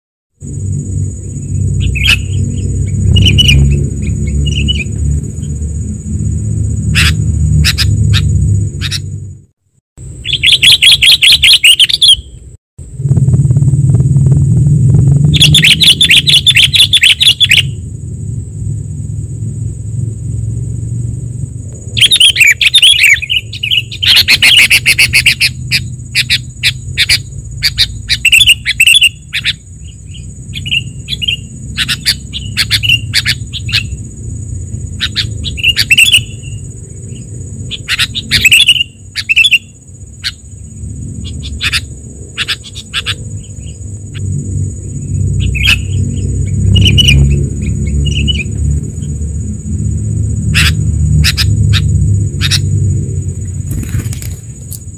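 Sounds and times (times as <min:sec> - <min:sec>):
steady high whine: 0:00.3 - 0:54.9
low rumble: 0:00.4 - 0:10.3, 0:12.8 - 0:24.4, 0:39.8 - 0:54.9
birds chattering and chirping: 0:01.2 - 0:09.3, 0:10.2 - 0:12.4, 0:15.2 - 0:17.8, 0:21.8 - 0:54.9.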